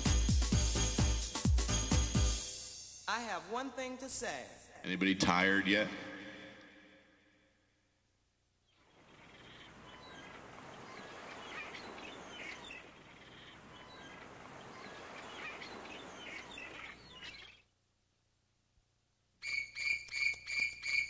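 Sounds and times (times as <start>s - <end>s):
birds chirping: 8.6s - 17.8s, 19.4s - 21.0s.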